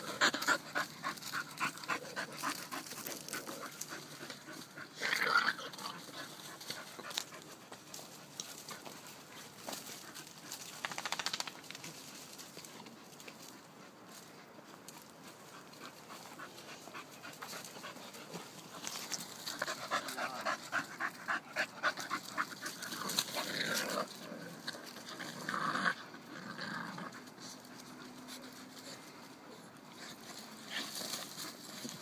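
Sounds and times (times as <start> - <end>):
dog panting: 0.0 - 5.0, 12.7 - 23.5
dogs play-wrestling: 0.0 - 32.0.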